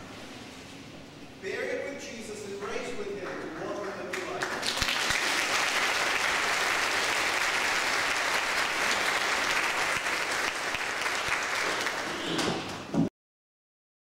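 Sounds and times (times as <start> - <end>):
congregation applauding: 3.8 - 12.8.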